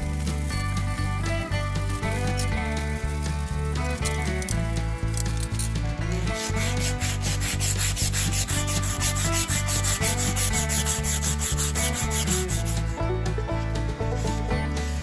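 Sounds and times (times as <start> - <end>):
abrasive cloth rubbing metal axle: 1.6 - 13.0.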